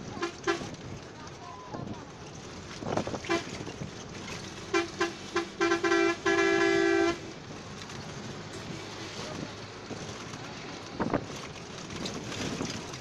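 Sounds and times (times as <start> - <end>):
moving vehicle noise: 0.0 - 13.0
vehicle horn honking: 0.2 - 0.7, 3.2 - 3.6, 4.7 - 7.3.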